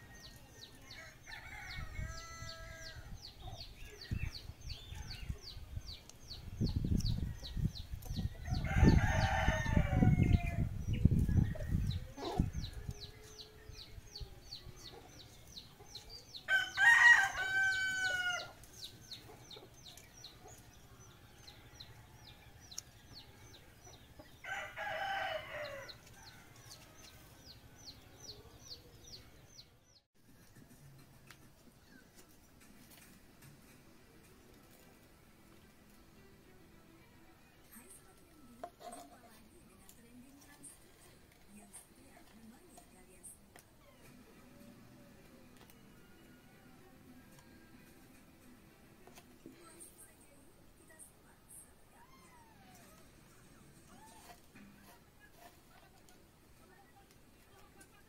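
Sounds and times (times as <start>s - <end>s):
roosters crowing: 0.0s - 3.2s, 8.4s - 10.7s, 16.4s - 18.7s, 24.3s - 27.6s.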